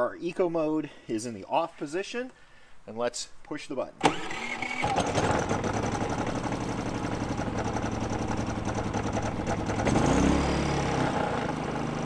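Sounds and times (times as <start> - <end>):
generator engine running: 4.0 - 12.0.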